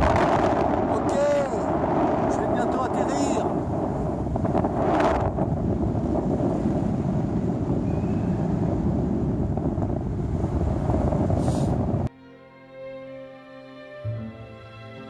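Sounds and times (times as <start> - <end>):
wind rushing over microphone: 0.0 - 12.1
soft string music: 12.1 - 15.0.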